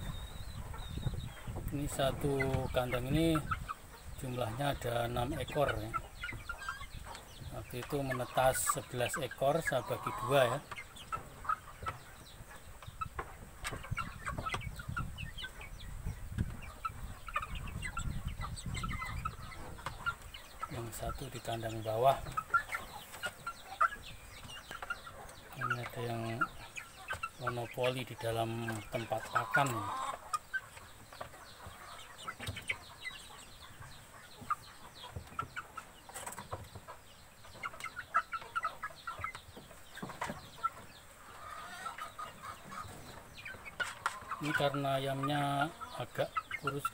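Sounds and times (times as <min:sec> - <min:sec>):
chicks cheeping: 0:00.0 - 0:46.9.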